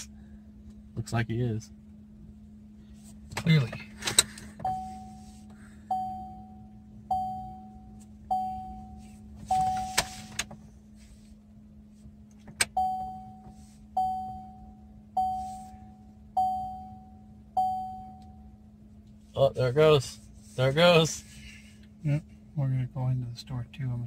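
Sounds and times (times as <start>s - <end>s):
faint steady hum: 0.0s - 24.0s
car warning chime dinging: 4.6s - 10.1s, 12.6s - 18.7s.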